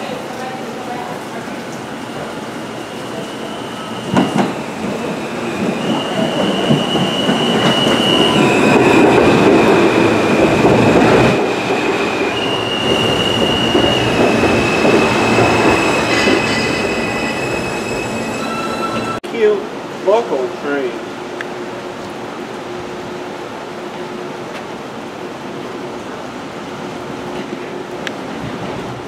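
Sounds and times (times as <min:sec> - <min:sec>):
subway train wheels rumbling: 0:00.0 - 0:29.0
high metallic squeals: 0:12.1 - 0:19.2.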